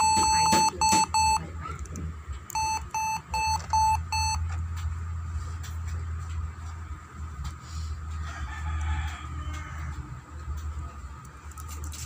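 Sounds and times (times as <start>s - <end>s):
laptop speaker beeping: 0.0s - 1.4s, 2.5s - 4.4s.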